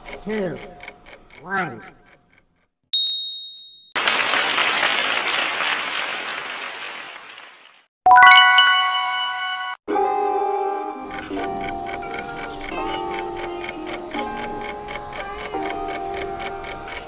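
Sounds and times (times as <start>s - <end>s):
bright ding: 3.0s - 4.0s, 8.1s - 9.8s
applause: 4.0s - 7.9s
bright chime: 8.1s - 9.8s
short musical jingle: 8.1s - 9.8s.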